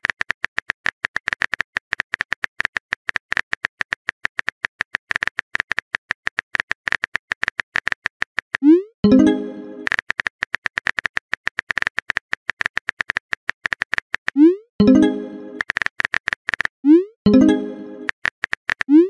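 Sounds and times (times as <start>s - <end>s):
keyboard typing clicks: 9.0s - 15.8s, 17.3s - 19.0s.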